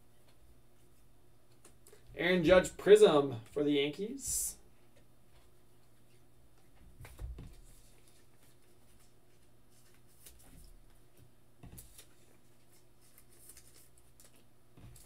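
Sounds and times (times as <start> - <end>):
cards rustling and tapping: 6.6 - 15.0.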